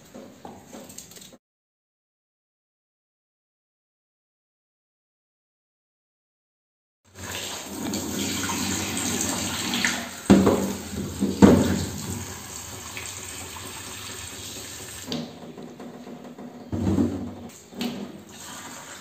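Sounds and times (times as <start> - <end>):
potatoes being rinsed by hand: 7.1 - 19.0
tap running into steel sink: 9.7 - 12.3.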